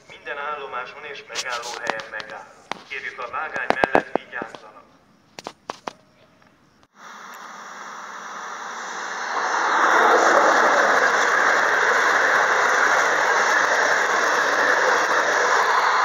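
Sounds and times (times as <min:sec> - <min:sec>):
train rushing: 0:08.8 - 0:16.0
train wheels squealing on rails: 0:09.2 - 0:16.0.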